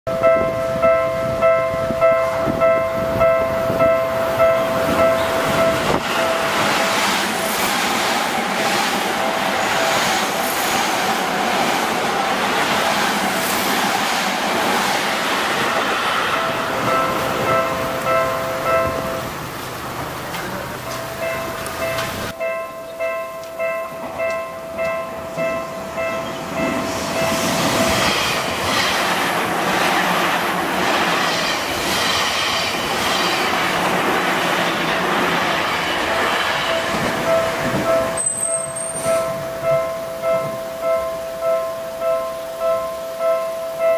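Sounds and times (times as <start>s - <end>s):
crossing warning bell: 0.1s - 7.4s, 15.5s - 19.6s, 20.2s - 28.7s, 35.6s - 43.9s
wind buffeting microphone: 0.1s - 20.6s, 25.2s - 40.7s
train wheels rushing on rails: 0.2s - 22.4s, 23.4s - 43.9s.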